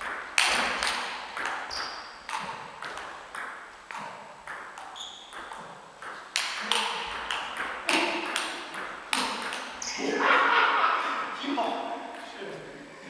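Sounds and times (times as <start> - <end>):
table tennis ball clicking: 0.0 - 9.9
short high squeaks: 4.9 - 5.4.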